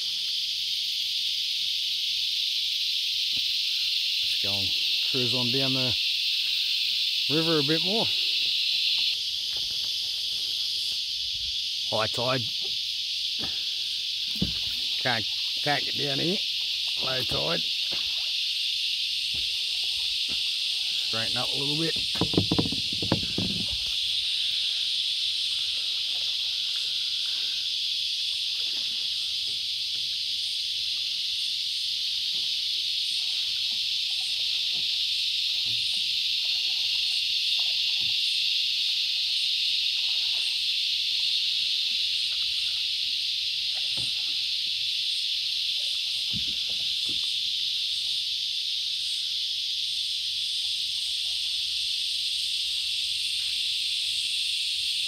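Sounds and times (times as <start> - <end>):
insect chorus drone: 0.0 - 55.0
paddle splashes: 4.2 - 30.9, 32.1 - 48.2.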